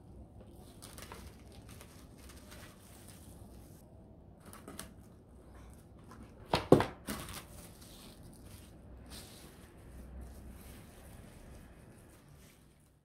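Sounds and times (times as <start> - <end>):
cling wrap crinkling: 0.5 - 3.8.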